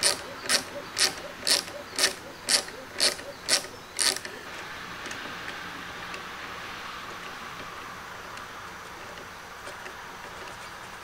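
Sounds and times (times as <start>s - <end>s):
sharp mechanical clicks: 0.0s - 6.3s.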